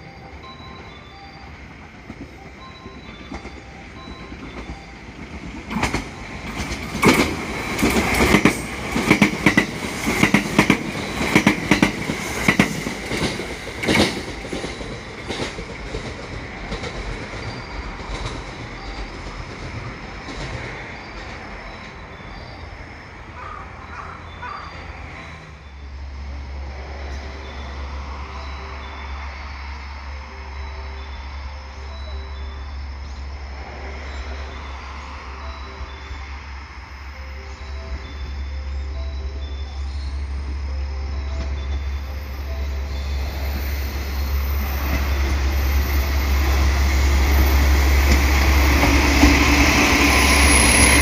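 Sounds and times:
high train whine: 0.0 - 51.0
train wheels clacking over rail joints: 1.8 - 22.6, 43.0 - 51.0.

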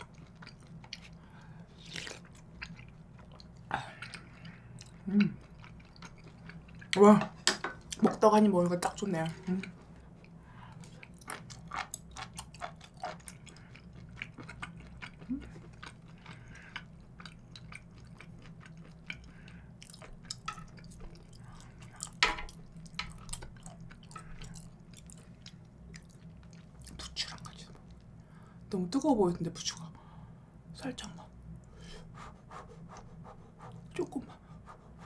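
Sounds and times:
close chewing with mouth smacks: 0.0 - 7.0, 9.6 - 28.1
faint low hum: 0.0 - 35.0.

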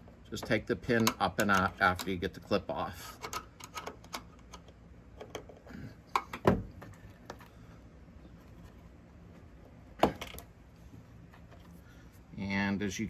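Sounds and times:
metal clicks and knocks: 0.4 - 2.2, 3.2 - 7.4.

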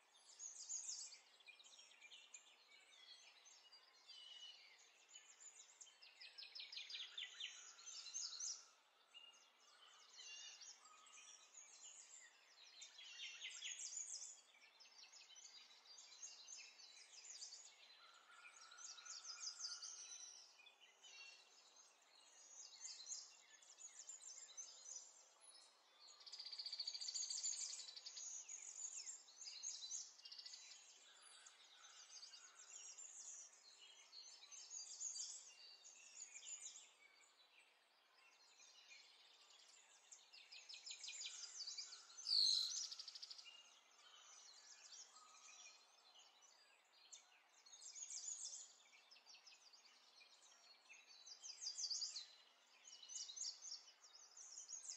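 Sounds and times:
birds chirping and trilling: 0.2 - 37.6, 38.2 - 54.9.

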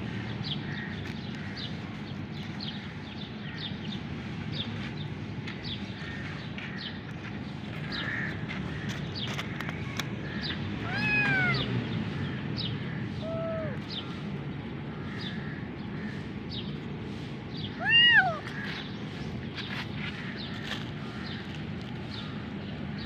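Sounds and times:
kitten meowing: 10.8 - 11.7, 13.2 - 13.8, 17.8 - 18.5.

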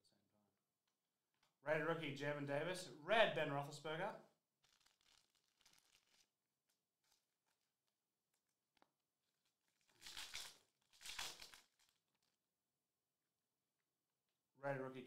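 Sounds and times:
cards being handled: 4.6 - 6.3
foil wrapper tearing: 4.6 - 7.6, 9.7 - 12.3.

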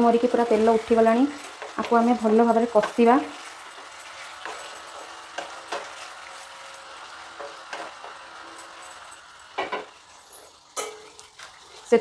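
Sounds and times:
chicken sizzling in oil: 0.0 - 12.0
spatula scraping and knocking pan: 1.3 - 8.8.

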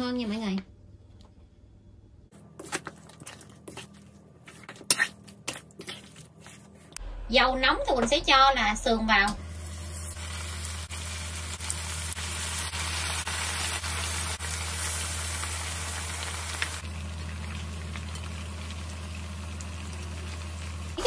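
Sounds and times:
meat sizzling in oil: 9.4 - 21.0.

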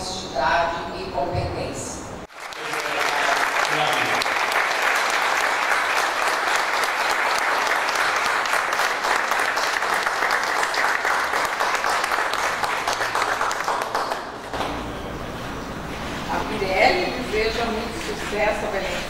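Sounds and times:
audience applauding: 2.3 - 14.5.

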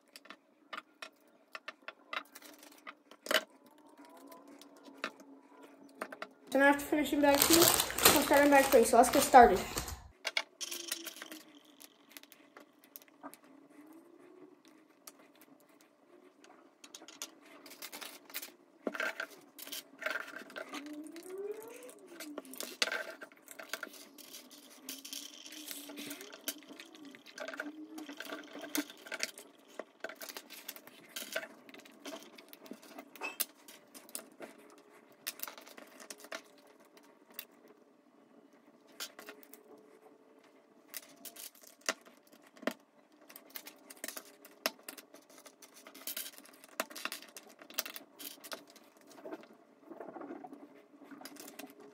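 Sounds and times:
plastic bricks clicking: 16.9 - 34.2.

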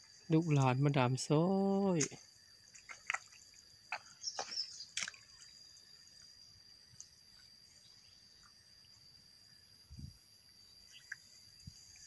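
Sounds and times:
water and mud splashing: 0.0 - 5.8.

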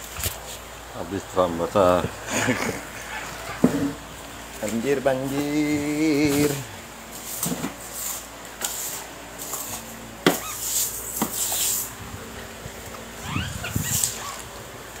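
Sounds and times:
broom sweeping water: 2.4 - 12.0, 13.6 - 14.5.

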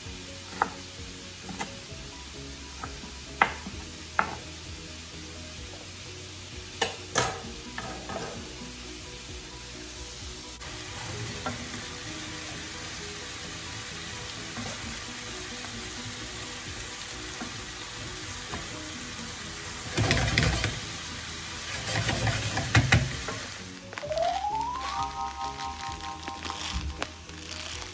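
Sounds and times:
meat sizzling in a frying pan: 0.0 - 27.9
wooden spatula scraping pan: 21.7 - 23.1.

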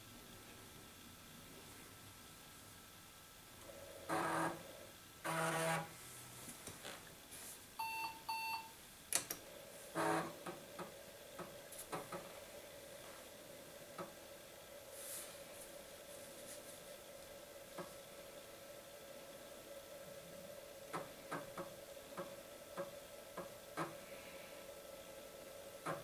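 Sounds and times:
floppy drive buzzing: 3.5 - 6.0, 7.8 - 14.9, 17.0 - 26.0
short electronic beeps: 7.8 - 8.7.

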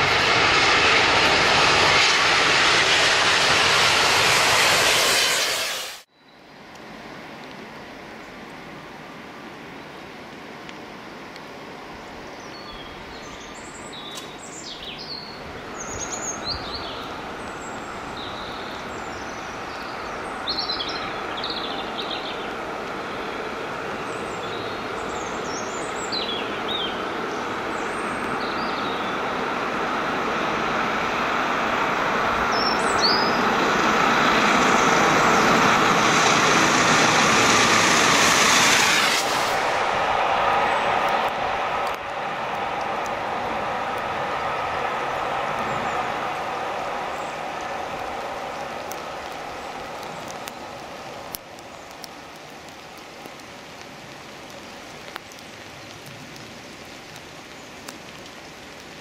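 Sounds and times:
steam locomotive passing: 0.0 - 6.1, 14.9 - 51.4
small birds chirping: 12.4 - 29.3, 32.5 - 33.6.

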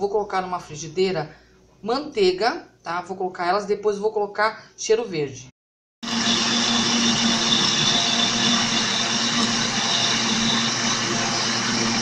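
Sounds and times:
blender motor running: 6.0 - 12.0.

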